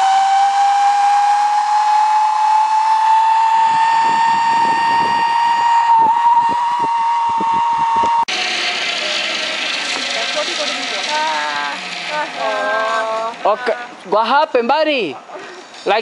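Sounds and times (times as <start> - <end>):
zipline pulleys whining on cable: 0.0 - 14.3
wind buffeting microphone: 3.5 - 8.3.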